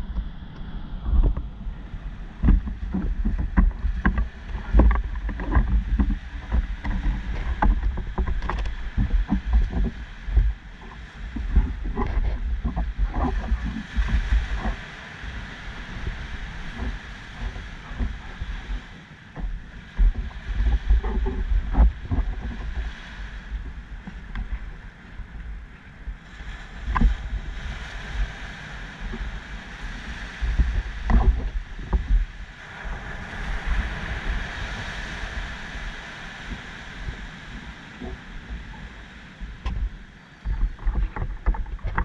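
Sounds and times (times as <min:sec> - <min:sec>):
wind noise: 0:00.0 - 0:42.0
bicycle knocks and rattles: 0:02.4 - 0:13.3, 0:39.6 - 0:42.0.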